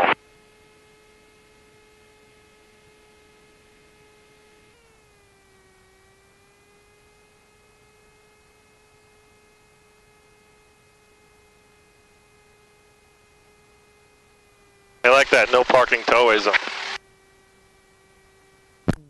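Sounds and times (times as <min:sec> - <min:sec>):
faint electrical whine in intercom: 0:00.0 - 0:19.0.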